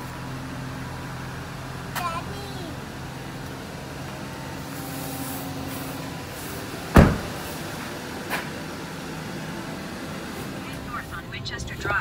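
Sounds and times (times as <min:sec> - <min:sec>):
low vehicle hum inside car: 0:00.0 - 0:12.0
loud thump: 0:06.9 - 0:07.5.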